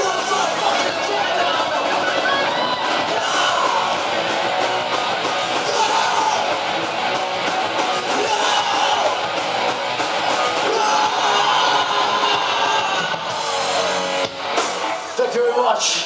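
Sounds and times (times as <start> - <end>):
drum kit: 0.0 - 15.6
electric guitars: 0.0 - 16.0
singer shouting into microphone: 5.6 - 6.6, 8.1 - 9.2, 10.6 - 13.4.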